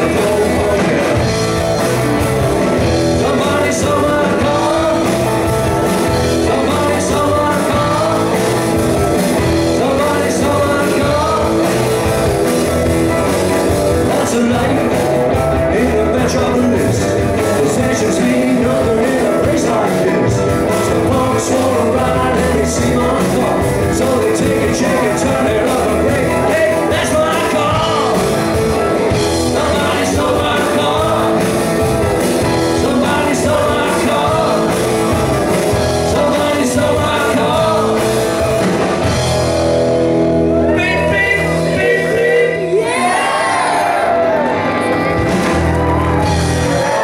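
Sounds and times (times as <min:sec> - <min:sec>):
person singing: 0:00.0 - 0:02.0, 0:02.6 - 0:12.2, 0:13.9 - 0:38.7, 0:40.5 - 0:45.1
bass guitar: 0:00.0 - 0:47.0
drums: 0:00.0 - 0:47.0
electric guitar: 0:00.0 - 0:47.0.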